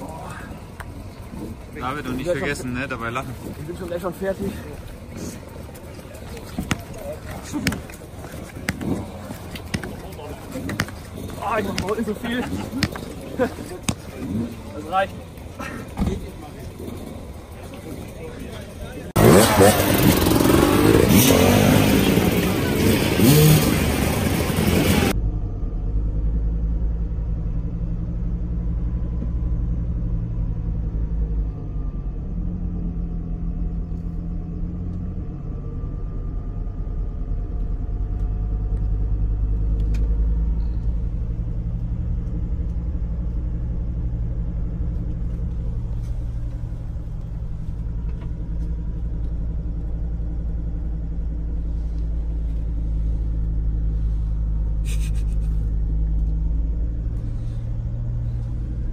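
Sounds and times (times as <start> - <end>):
vehicle engine and road noise: 0.0 - 58.9.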